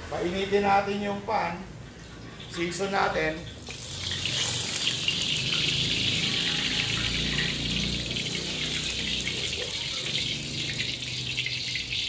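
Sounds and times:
hot oil sizzling in a wok: 2.4 - 12.0
ladle swirling oil in pan: 3.6 - 7.5.

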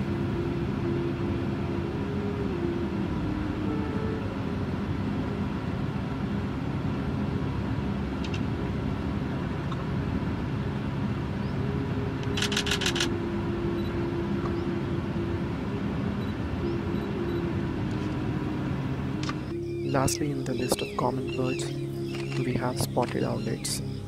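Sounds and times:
humming tones: 0.0 - 24.0
steady low rumble: 0.0 - 24.0
sharp clicks: 12.2 - 13.1.

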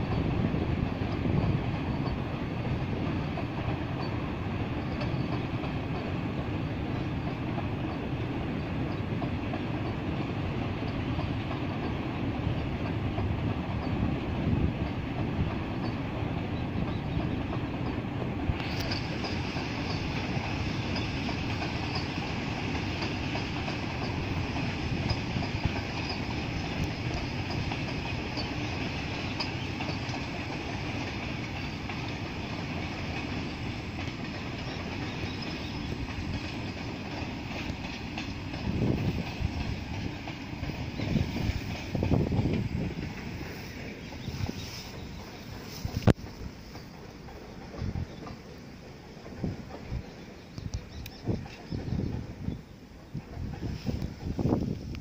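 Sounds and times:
freight train rumbling: 0.0 - 55.0
wheels clattering over rail joints: 0.0 - 55.0
bright hiss: 18.5 - 42.0.

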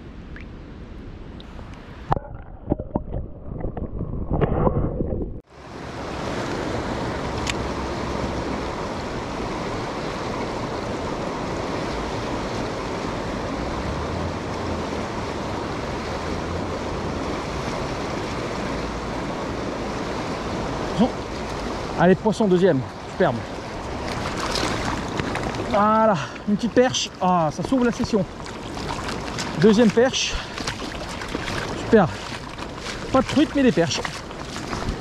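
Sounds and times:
underwater sloshing and knocks: 2.1 - 5.4, 23.6 - 25.7, 27.6 - 35.0
fast-flowing river current: 5.5 - 35.0.

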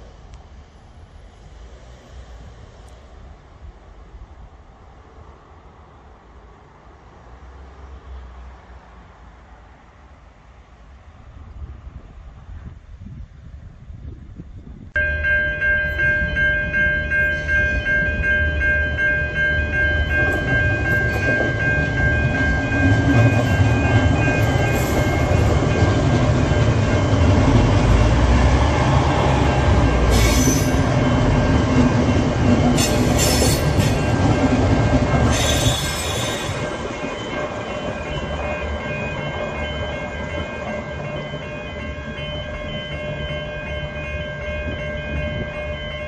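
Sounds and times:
wheels rumbling on rails: 0.0 - 46.0
diesel train engines running: 11.3 - 46.0
steady high tones: 15.0 - 46.0
wheels squealing: 20.1 - 32.0, 32.7 - 38.9.

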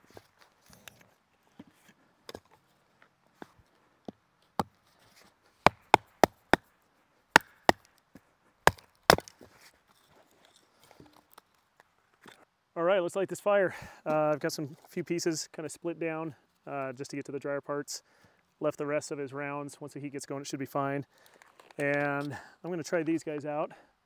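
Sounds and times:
axe chopping wood: 5.6 - 6.7, 7.3 - 7.9, 8.6 - 9.4.

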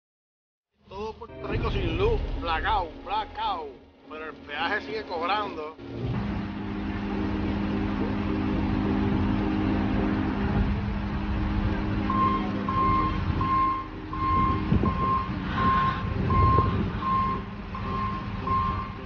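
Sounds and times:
diesel engine running: 5.8 - 19.0
reversing alarm beeping: 11.9 - 19.0.

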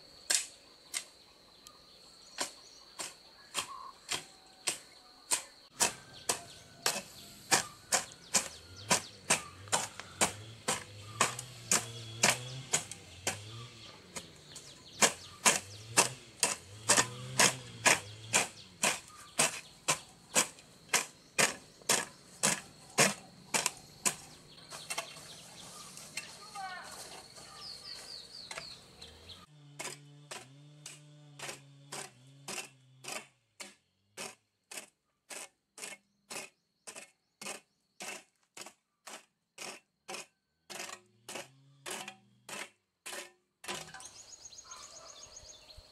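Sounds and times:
bird chirps: 0.8 - 16.0, 17.1 - 29.6, 43.9 - 45.9.

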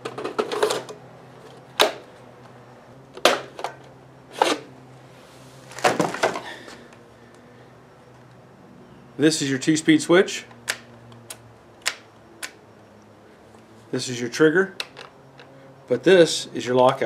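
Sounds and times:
trimmer handling clicks and clunks: 14.8 - 15.6.

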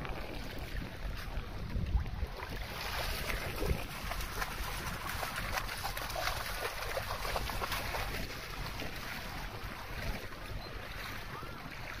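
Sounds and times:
wind rumbling on microphone: 0.0 - 12.0
dog splashing through water: 2.1 - 12.0.

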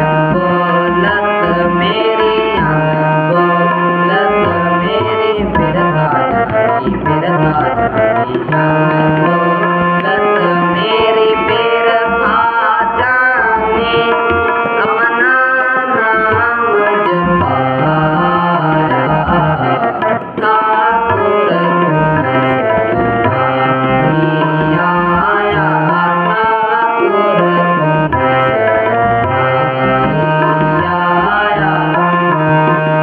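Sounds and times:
harmonium holding notes: 0.0 - 33.0
tabla beat: 0.0 - 33.0
voices singing a hymn: 23.4 - 28.0, 30.3 - 32.8.

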